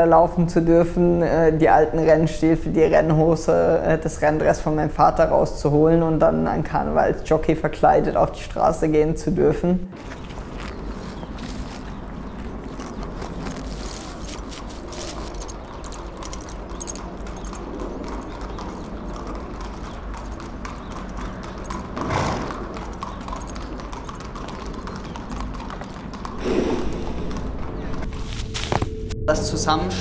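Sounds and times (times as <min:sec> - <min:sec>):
horse hooves clopping: 0:09.9 - 0:28.8.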